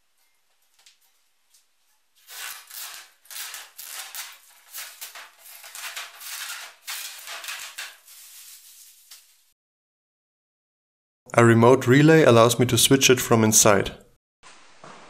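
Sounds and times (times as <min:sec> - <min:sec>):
plastic film peeling and crackling: 0:02.2 - 0:09.5.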